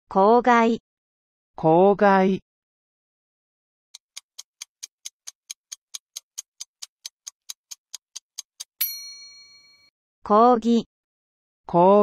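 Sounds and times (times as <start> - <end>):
clock ticking: 4.0 - 8.9
bright bell ding: 8.8 - 9.9.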